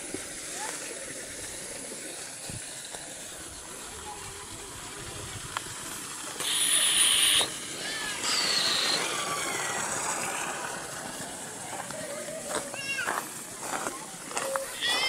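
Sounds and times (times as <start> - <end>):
running water hissing: 0.0 - 15.0
loud high-pitched buzzes: 6.4 - 9.2.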